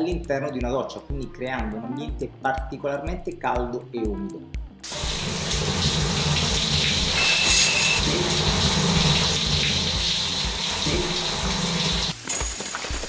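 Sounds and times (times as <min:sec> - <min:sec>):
shower spray running: 0:04.8 - 0:12.2.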